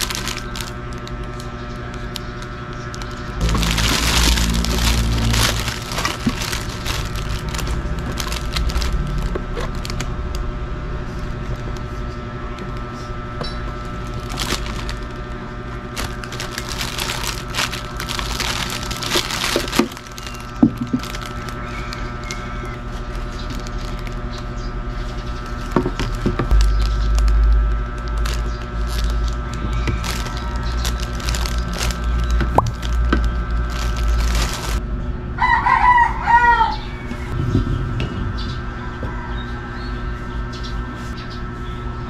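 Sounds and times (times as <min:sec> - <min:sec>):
plastic film crinkling: 0:00.0 - 0:10.1, 0:13.8 - 0:34.8
steady hum: 0:00.0 - 0:35.4, 0:36.0 - 0:42.0.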